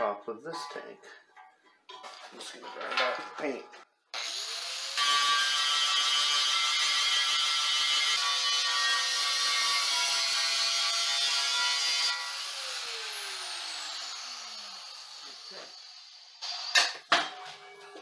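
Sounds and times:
angle grinder grinding metal: 4.2 - 18.0.

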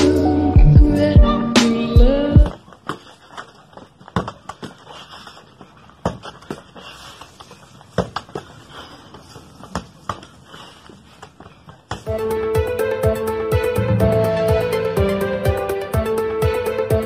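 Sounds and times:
footsteps stamping on dirt: 2.4 - 12.1
soft shuffling: 2.5 - 12.1.

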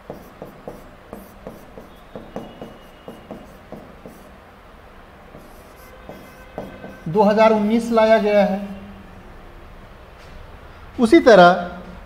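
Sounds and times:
writing scratching on board: 0.0 - 4.4, 5.3 - 7.2.

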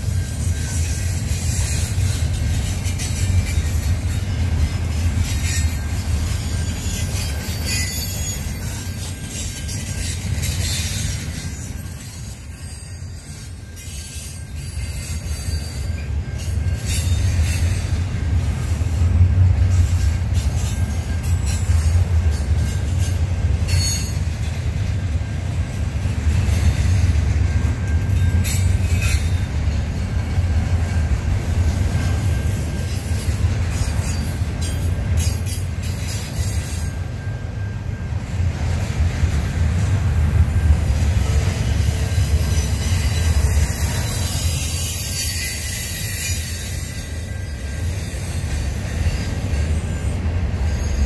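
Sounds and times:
freight train rumbling: 0.0 - 51.0
train wheel squeals: 0.0 - 51.0.

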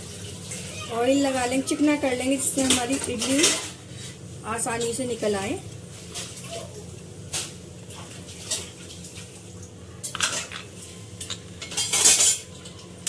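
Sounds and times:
metal plates clinking: 11.2 - 12.5.

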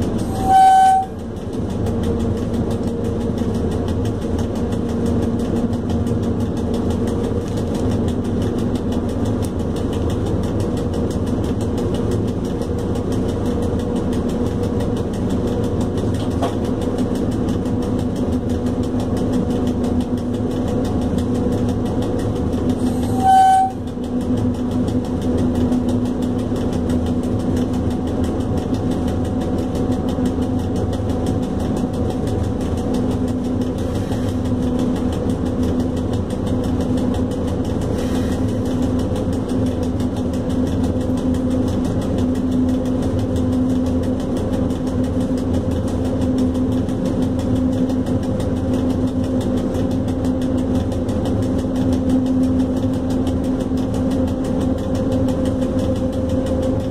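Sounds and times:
locomotive rumble and hum: 0.0 - 56.9
locomotive horn blast: 0.2 - 1.2, 22.9 - 24.0.

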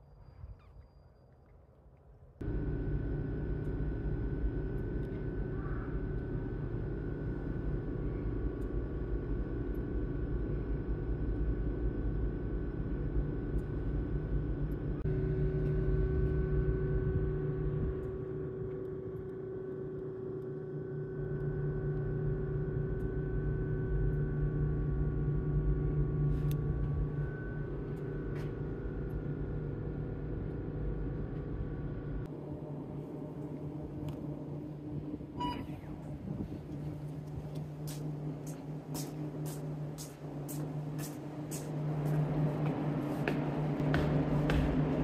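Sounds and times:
low mechanical hum: 0.0 - 45.0
faint held tones: 35.3 - 36.2.

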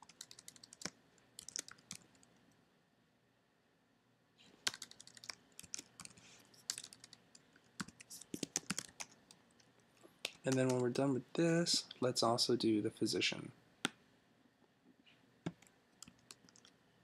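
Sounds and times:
typing on computer keyboard: 0.0 - 2.3, 4.6 - 9.4, 10.3 - 11.0, 15.5 - 16.7.

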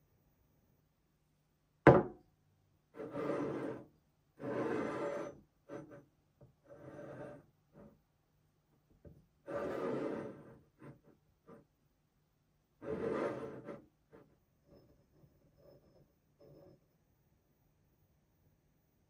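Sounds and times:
ceramic mug knocking on table: 1.9 - 2.2
mug base scraping on table: 3.0 - 7.9, 9.5 - 11.6, 12.8 - 16.8.

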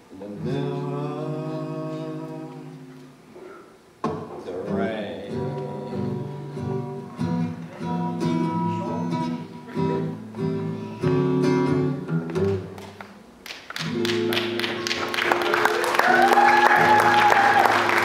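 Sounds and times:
acoustic guitar strumming: 4.0 - 12.8
audience applause: 12.8 - 18.0.

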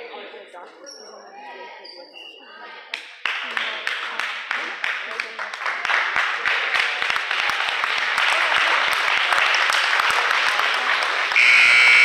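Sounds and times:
crowd applauding: 3.2 - 12.0
scoreboard buzzer: 11.4 - 12.0.

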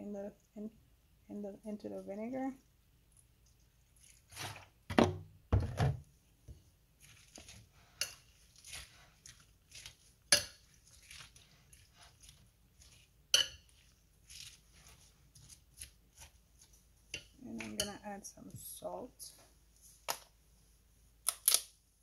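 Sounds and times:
fork clinking on glass bowl: 13.3 - 13.7.

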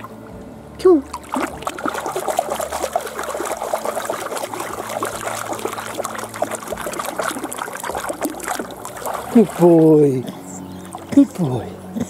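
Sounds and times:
pool water sloshing and splashing: 0.0 - 11.8.

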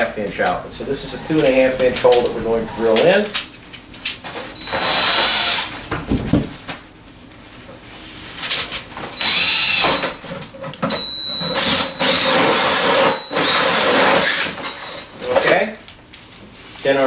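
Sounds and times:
drill cutting sheet metal: 4.6 - 5.7, 9.2 - 10.2, 11.0 - 14.8.

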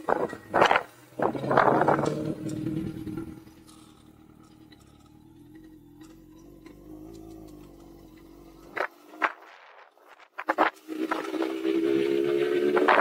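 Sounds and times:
motorcycle engine idling: 0.0 - 10.1.

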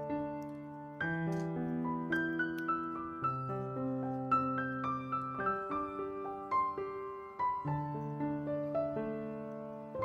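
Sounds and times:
slow piano melody: 0.0 - 10.0.

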